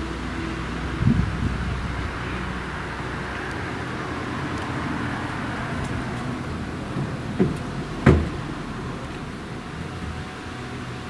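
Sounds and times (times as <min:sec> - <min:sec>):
strong gusty wind: 0:00.0 - 0:11.0
knocks: 0:07.4 - 0:08.4.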